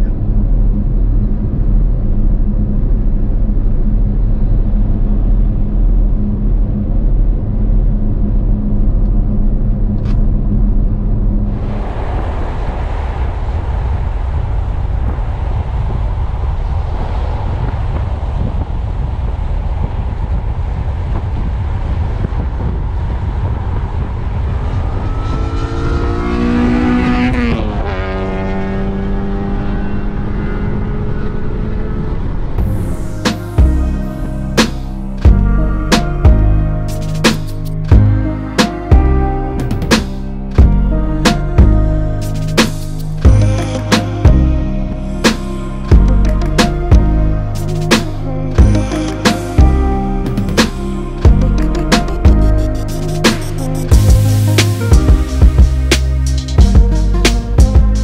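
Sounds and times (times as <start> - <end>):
car engine and road drone: 0.0 - 58.0
rush of wind and tyres: 0.0 - 58.0
rising multi-pitch tone: 24.4 - 58.0.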